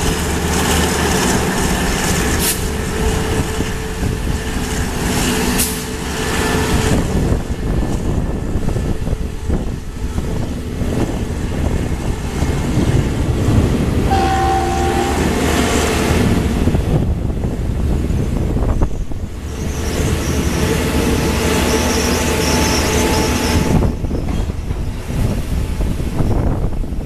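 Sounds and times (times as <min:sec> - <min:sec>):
train wheels rumbling on track: 0:00.0 - 0:27.0
brief tone: 0:14.1 - 0:15.3.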